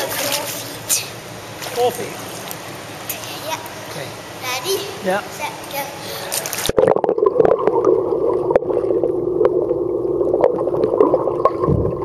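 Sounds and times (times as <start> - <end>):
underwater hum: 6.6 - 12.0
underwater ticks and bubbling: 6.7 - 12.0.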